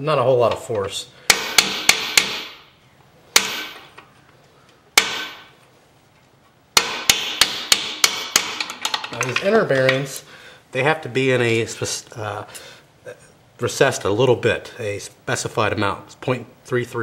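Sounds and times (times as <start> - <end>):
sledgehammer striking steel socket: 3.4 - 4.0.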